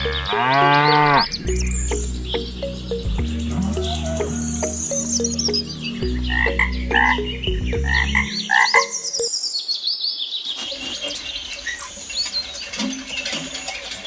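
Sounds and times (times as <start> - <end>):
high chirping calls falling pitch: 0.0 - 9.8
steady low tone: 1.2 - 8.5.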